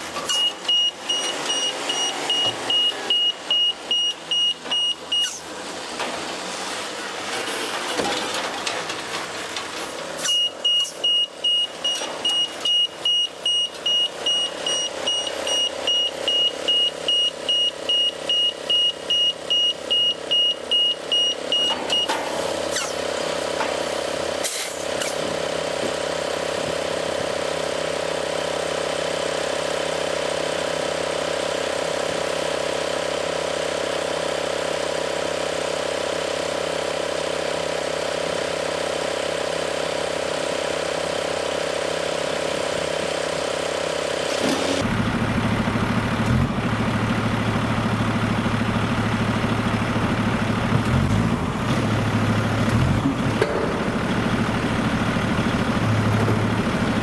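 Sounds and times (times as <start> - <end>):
diesel engine running: 0.0 - 57.0
reverse alarm beeping: 0.3 - 5.4, 10.3 - 22.1.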